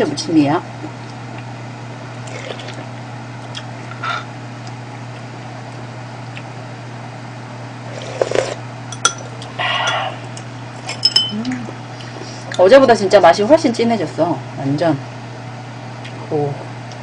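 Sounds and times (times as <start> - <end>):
steady low hum: 0.0 - 17.0
chewing and slurping: 2.2 - 2.9, 7.8 - 8.6.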